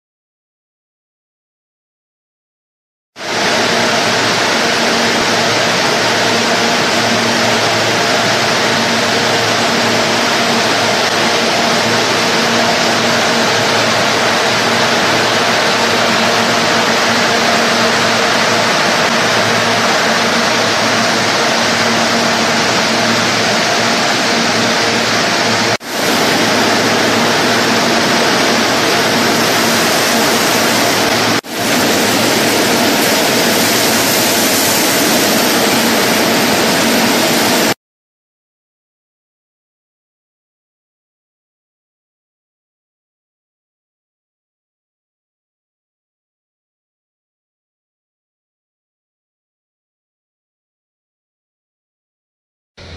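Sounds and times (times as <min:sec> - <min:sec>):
machinery motors humming: 0:03.3 - 0:37.7.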